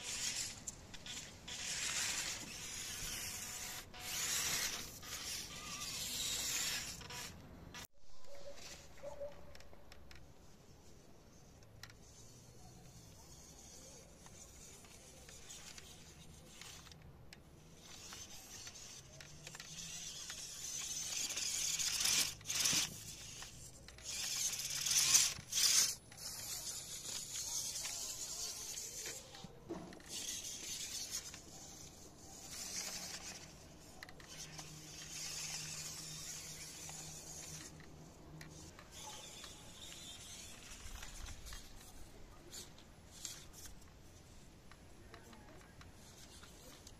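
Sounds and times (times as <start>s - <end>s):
small electric motors whirring: 0.0s - 46.9s
tyres scraping on dirt: 18.0s - 43.8s.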